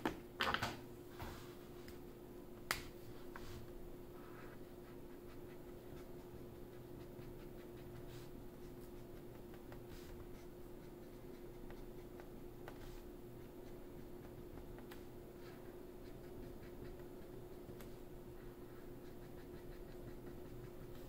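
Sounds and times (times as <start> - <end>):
faint steady hum: 0.0 - 21.0
marker scratching on paper: 4.2 - 18.0, 18.6 - 21.0.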